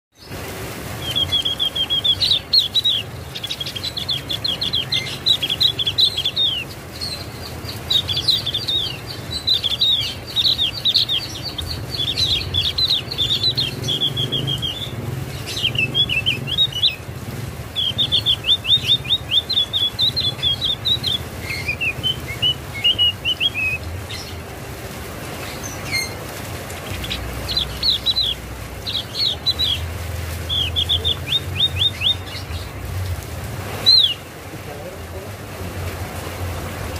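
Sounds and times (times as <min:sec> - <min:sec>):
bird singing high slurred notes: 0:01.0 - 0:17.1, 0:26.8 - 0:32.7.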